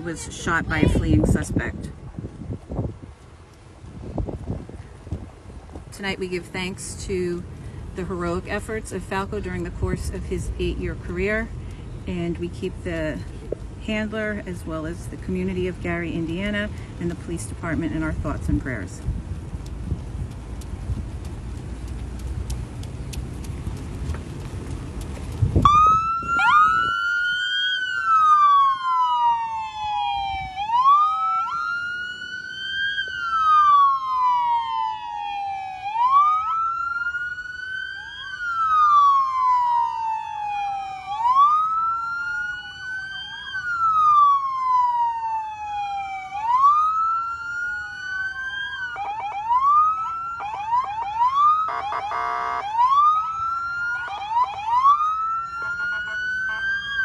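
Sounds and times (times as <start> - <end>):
electronic police siren wailing: 25.7 - 57.0
siren buzzing blast: 25.7 - 57.0.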